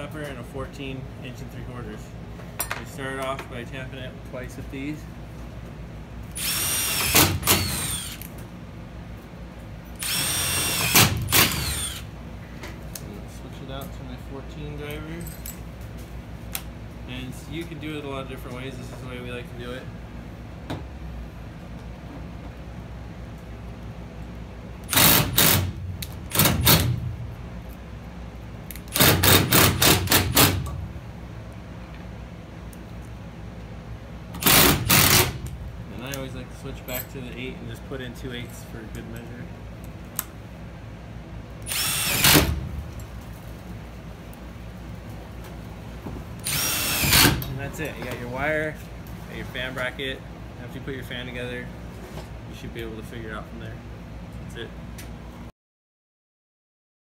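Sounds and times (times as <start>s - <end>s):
cordless drill motor whine: 6.4s - 8.2s, 10.0s - 12.1s, 41.7s - 42.4s, 46.4s - 47.4s
sharp cracks of screw: 6.4s - 8.4s, 10.0s - 12.1s, 24.8s - 27.0s, 28.6s - 30.8s, 34.4s - 36.3s, 41.6s - 42.6s, 46.4s - 47.5s
impact driver rattling: 10.0s - 12.0s, 24.9s - 27.0s, 28.9s - 30.8s, 34.4s - 35.5s, 41.7s - 42.7s.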